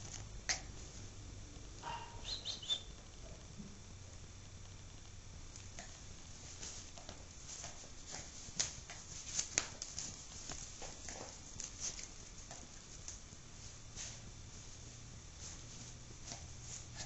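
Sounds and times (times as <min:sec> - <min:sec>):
puppy claws tapping on floor: 0:06.6 - 0:13.2.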